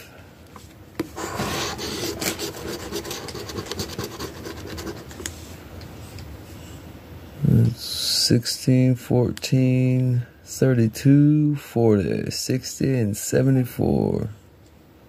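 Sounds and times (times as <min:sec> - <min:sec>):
scratching lottery ticket coating: 0:01.4 - 0:05.2.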